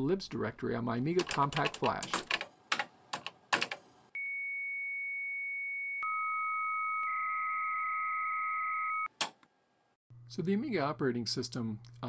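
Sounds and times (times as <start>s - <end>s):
lower steady modem tone: 4.2s - 9.1s
warbling modem data signal: 6.0s - 9.1s.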